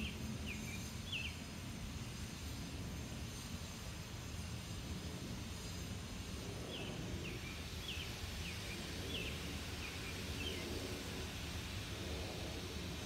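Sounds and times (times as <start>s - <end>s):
bird chirping: 0.0s - 1.4s, 6.7s - 10.7s
low rumble of street noise: 0.0s - 13.0s.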